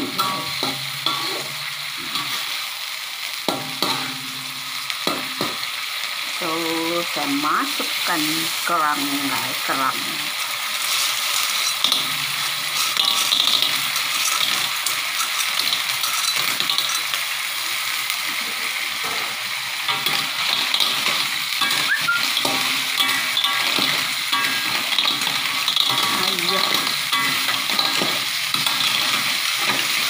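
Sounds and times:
paste sizzling in a wok: 0.0 - 30.0
shells clattering against pan: 10.8 - 17.3, 19.9 - 30.0.

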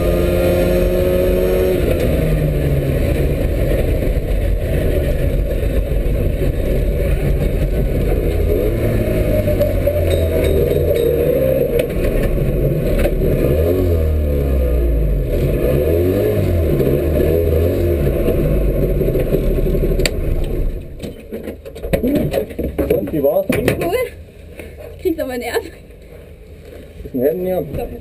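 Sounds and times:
two-stroke car engine revving: 0.0 - 5.8, 6.7 - 20.5
rattles and clatter: 3.0 - 13.2, 18.1 - 25.0.

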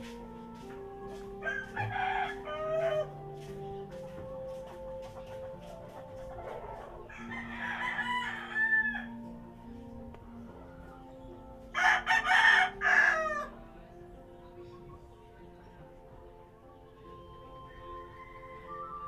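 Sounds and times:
soft music: 0.0 - 19.0
rooster crowing: 1.4 - 3.1, 6.5 - 9.3, 11.8 - 13.5.

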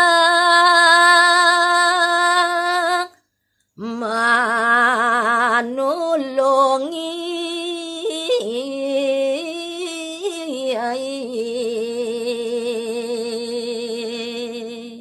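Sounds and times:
woman singing unaccompanied: 0.0 - 3.2, 3.8 - 15.0.

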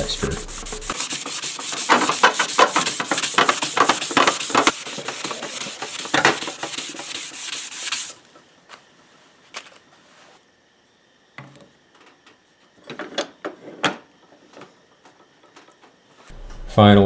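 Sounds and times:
hand-sanding metal sheet: 0.0 - 8.2.

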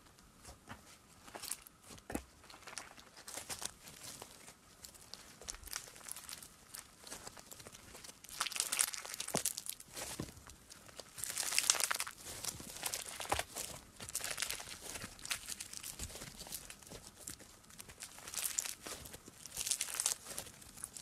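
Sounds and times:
slime squeezed by hand crackling: 5.6 - 10.0, 10.9 - 21.0.

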